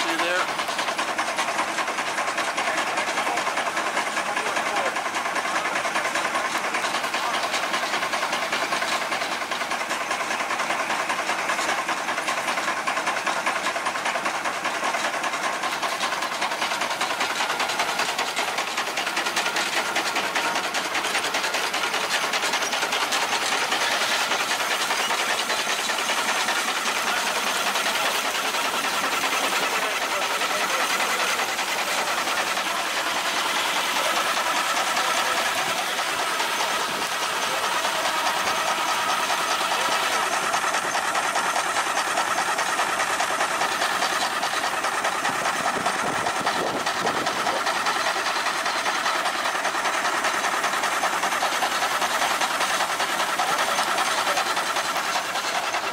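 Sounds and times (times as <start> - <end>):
steam engine exhaust beat: 0.0 - 55.9
steam hissing: 0.0 - 55.9.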